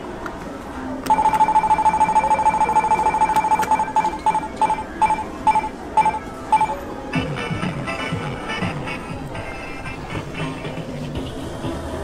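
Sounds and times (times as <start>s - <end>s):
electronic game machine beeping: 1.1s - 10.0s.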